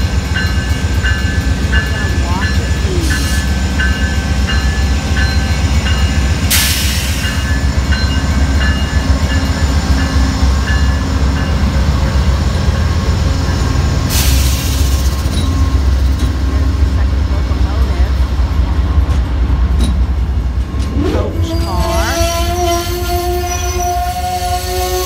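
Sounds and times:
crossing bell dinging: 0:00.0 - 0:13.8
diesel locomotive engines rumbling: 0:00.0 - 0:25.0.

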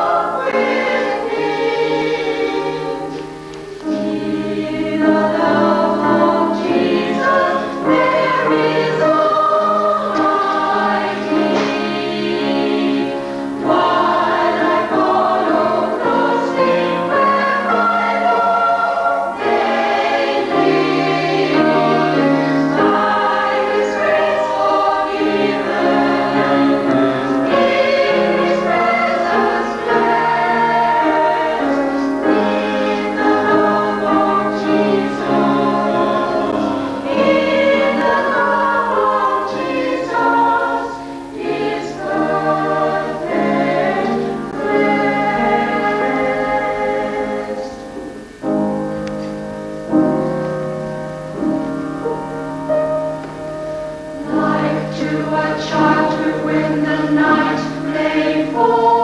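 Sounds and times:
mixed choir singing: 0:00.0 - 0:48.8, 0:51.3 - 0:59.0.

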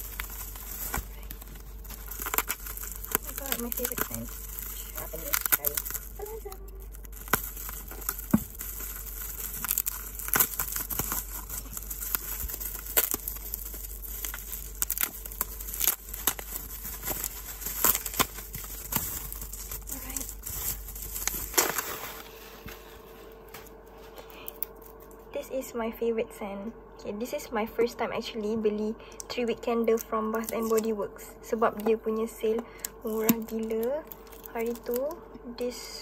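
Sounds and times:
scissors cutting bubble wrap: 0:00.0 - 0:22.4, 0:29.8 - 0:30.9, 0:31.6 - 0:35.2
plastic crinkling and crackling: 0:00.0 - 0:25.3, 0:29.8 - 0:31.0, 0:31.6 - 0:35.2.

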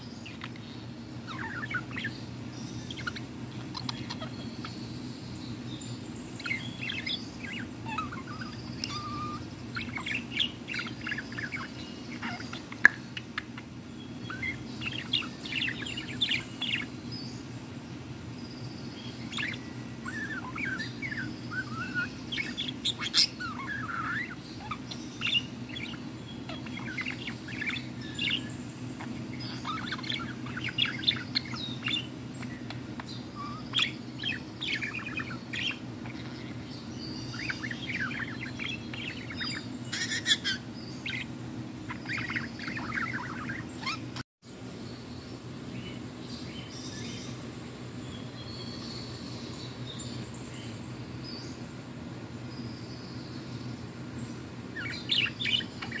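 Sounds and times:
budgerigar chattering and warbling: 0:01.2 - 0:02.2, 0:02.8 - 0:04.8, 0:06.4 - 0:16.9, 0:19.3 - 0:36.6, 0:37.2 - 0:41.3, 0:41.9 - 0:44.2, 0:54.8 - 0:56.0.

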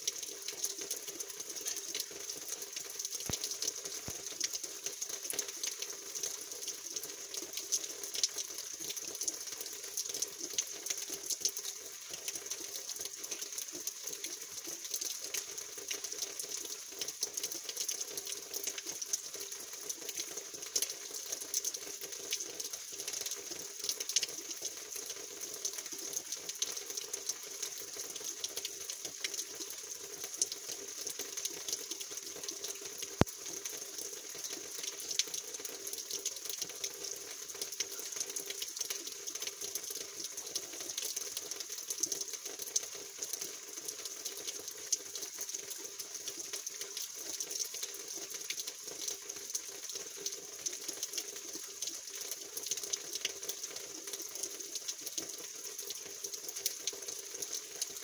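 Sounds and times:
rain drips ticking: 0:00.0 - 0:58.0.

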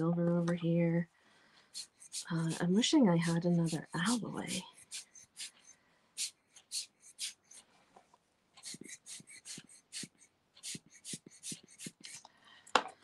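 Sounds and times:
tool scratching on paper: 0:01.7 - 0:07.6, 0:08.6 - 0:12.2.

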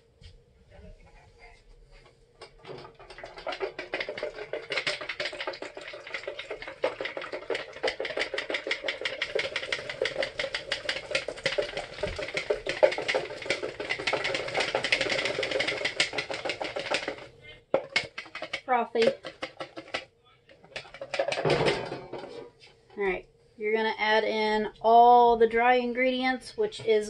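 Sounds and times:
wire whisk beating egg white: 0:02.6 - 0:20.0.

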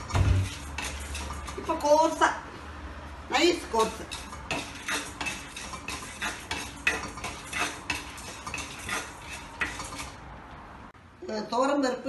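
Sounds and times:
spatula scraping metal pan: 0:00.0 - 0:02.2, 0:03.5 - 0:10.3.

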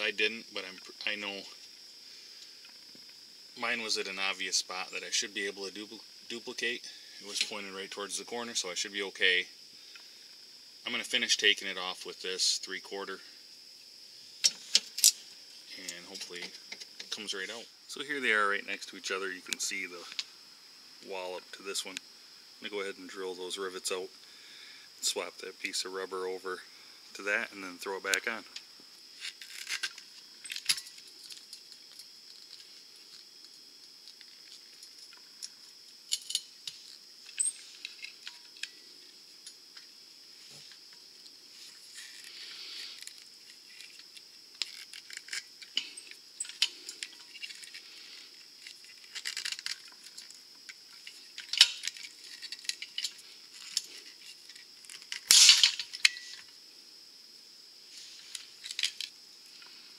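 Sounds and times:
rivet tool clicking and crunching: 0:48.6 - 0:56.5, 0:58.3 - 0:59.1.

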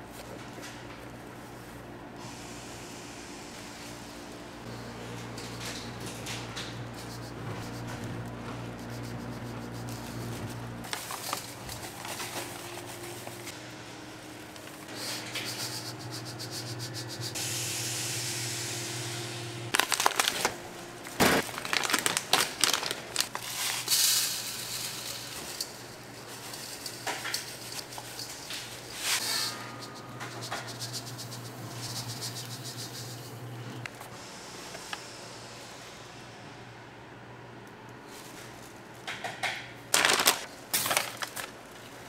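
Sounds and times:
machine hum: 0:00.0 - 0:23.4, 0:24.4 - 0:38.0
hiss: 0:02.2 - 0:03.7, 0:14.9 - 0:19.4, 0:23.8 - 0:25.7.

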